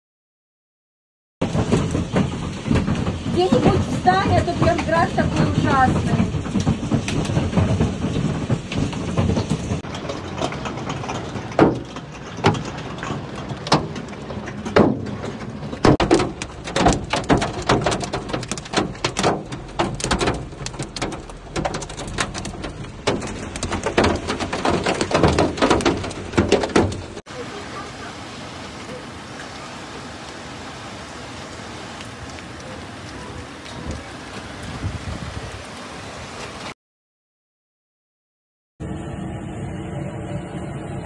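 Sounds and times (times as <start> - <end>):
heavy hail striking hard surfaces: 1.4 - 28.1.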